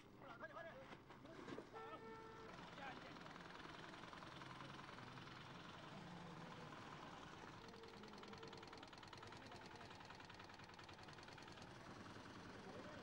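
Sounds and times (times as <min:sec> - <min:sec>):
faint engine running: 0:02.7 - 0:13.0.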